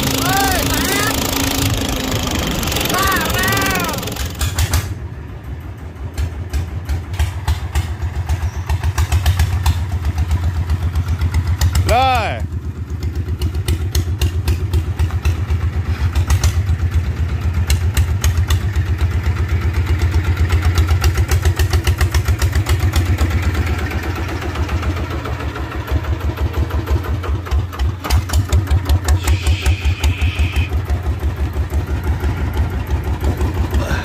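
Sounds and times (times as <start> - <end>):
engine chugging: 0.0 - 34.0.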